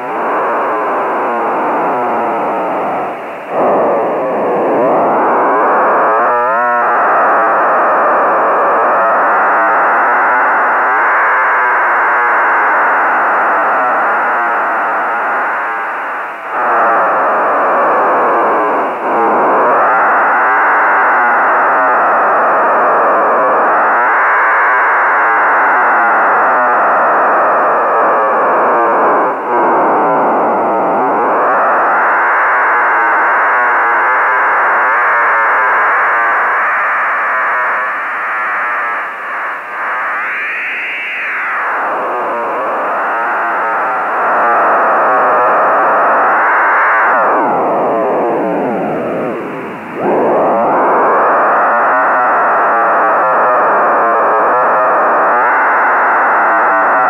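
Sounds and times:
buzzy radio telemetry drone: 0:00.0 - 0:07.2, 0:36.6 - 0:56.9.

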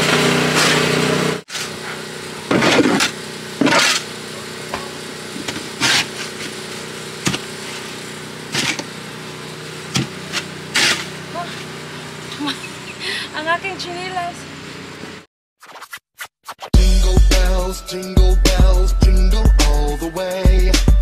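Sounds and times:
snow shovel scraping deck: 0:00.0 - 0:08.9, 0:09.9 - 0:11.7
steady motor hum: 0:00.0 - 0:15.3.

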